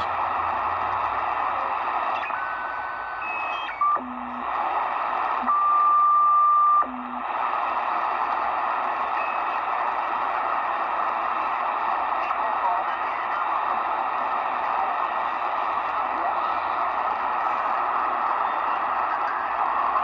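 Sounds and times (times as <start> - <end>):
radio static hiss: 0.0 - 20.0.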